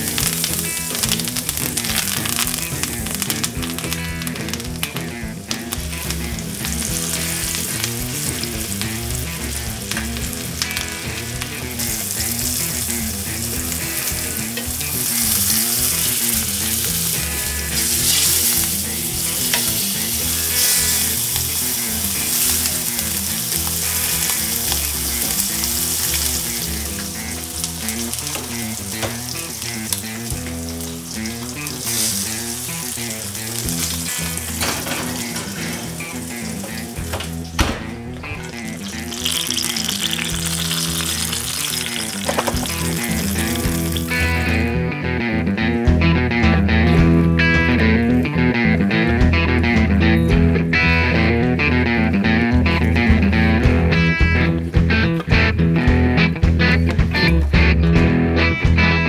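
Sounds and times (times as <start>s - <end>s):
meat sizzling in a skillet: 0.0s - 37.6s, 38.2s - 44.6s.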